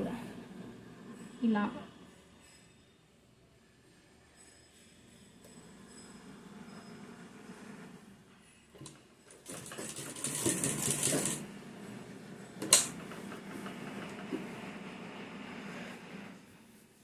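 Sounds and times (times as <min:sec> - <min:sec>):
sewing machine stitching: 0:08.8 - 0:11.6.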